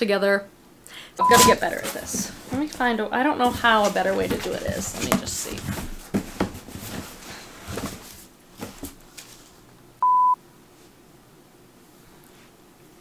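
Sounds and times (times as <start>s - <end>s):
electronic censor bleep: 1.2s - 1.6s, 10.0s - 10.4s
cardboard box knocks and rustles: 1.9s - 9.0s.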